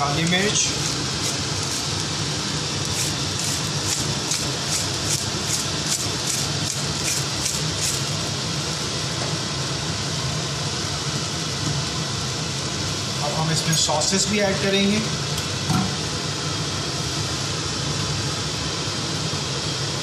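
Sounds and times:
stove hiss and hum: 0.0 - 20.0
pepper shaker rattling: 0.7 - 2.0, 2.9 - 8.1.

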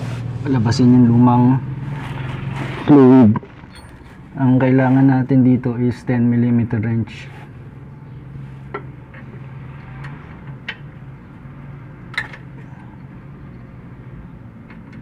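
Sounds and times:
steady low hum: 0.0 - 8.4.

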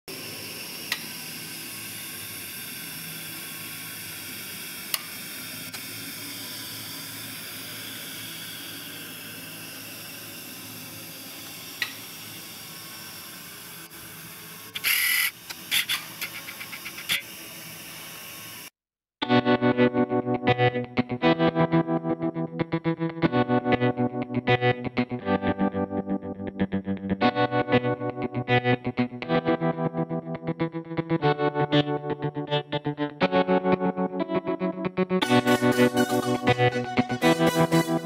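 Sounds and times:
bench torch hissing: 0.1 - 18.8.

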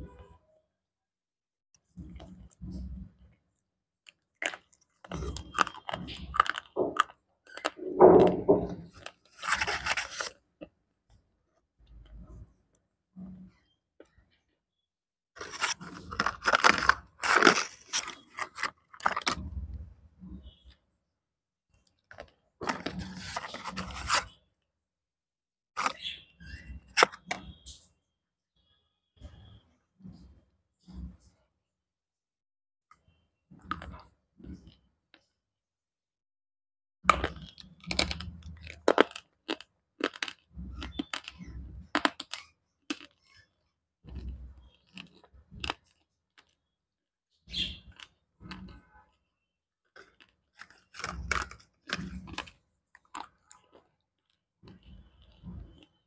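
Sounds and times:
pencil being chewed with crunch: 4.1 - 8.3, 8.9 - 10.8, 15.4 - 19.5, 21.9 - 24.4, 25.8 - 26.0, 37.1 - 46.8, 47.5 - 48.8, 49.9 - 56.0.

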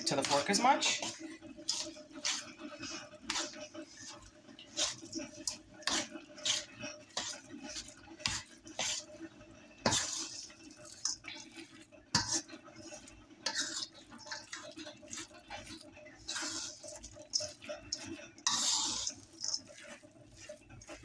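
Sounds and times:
fork scraping metal bowl: 0.0 - 21.0.

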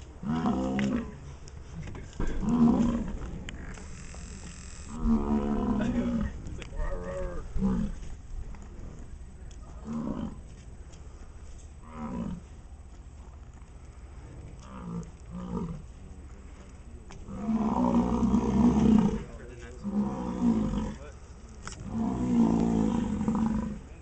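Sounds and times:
bison bellowing: 0.0 - 1.2, 2.2 - 8.3, 14.6 - 15.9, 17.2 - 21.0, 21.8 - 23.9.

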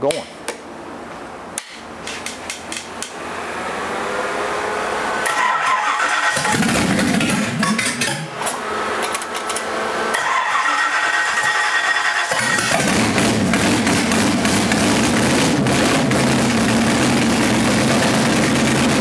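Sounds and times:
engine firing and running: 3.0 - 19.0
starter motor cranking: 5.2 - 14.9.

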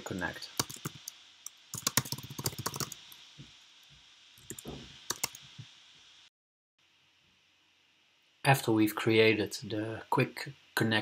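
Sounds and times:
typing on computer keyboard: 0.6 - 3.0, 4.4 - 5.4.

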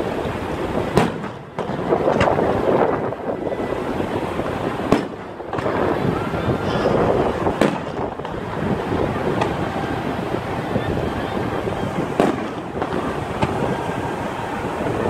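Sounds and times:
fireworks bursting with bangs: 0.0 - 15.0
steady background rush: 0.0 - 15.0.

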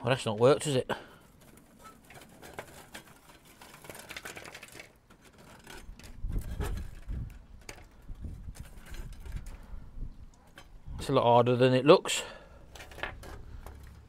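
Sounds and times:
dry twigs rustling and snapping: 0.6 - 10.8.

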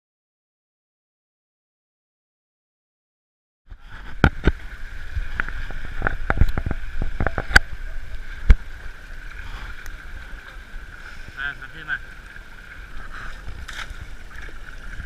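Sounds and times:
steady hiss: 3.7 - 15.0
water splashing: 3.7 - 15.0.

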